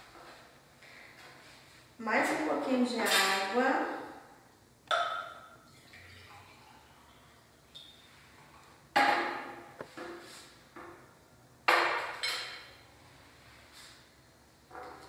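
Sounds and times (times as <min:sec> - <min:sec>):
glass clinking: 0:04.9 - 0:06.4.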